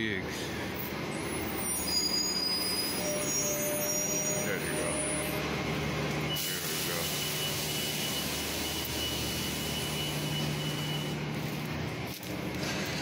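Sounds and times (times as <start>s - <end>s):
train rushing with low hum: 0.0s - 13.0s
thin high squeal: 1.3s - 5.4s.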